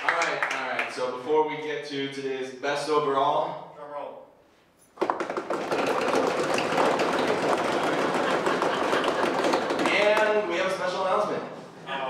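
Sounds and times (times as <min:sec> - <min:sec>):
drum roll: 0:05.0 - 0:10.9.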